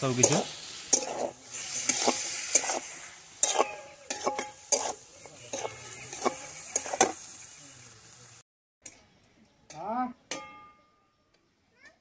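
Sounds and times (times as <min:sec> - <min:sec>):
chicken sizzling in oil: 0:00.0 - 0:08.4
utensil scraping a pot: 0:00.2 - 0:07.2.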